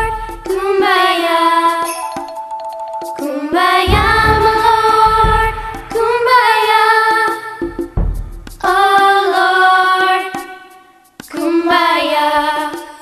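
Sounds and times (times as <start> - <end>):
person singing children's song: 3.1 - 7.4.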